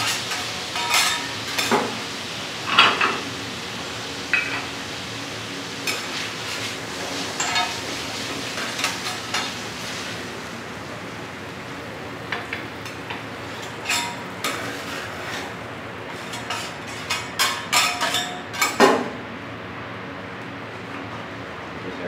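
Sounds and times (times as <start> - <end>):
metal spatulas scraping on griddle: 0.0 - 2.0, 5.8 - 7.8, 13.5 - 18.8
light sizzle: 0.0 - 18.8.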